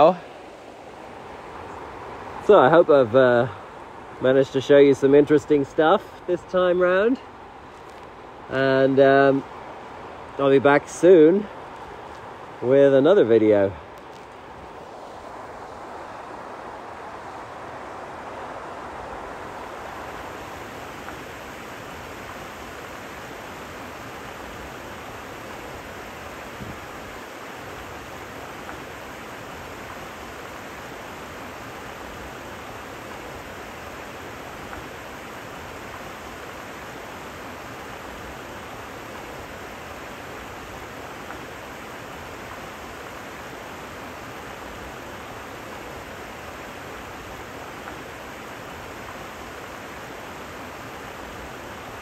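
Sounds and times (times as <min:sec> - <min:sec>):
river flowing over stones: 0:00.0 - 0:52.0.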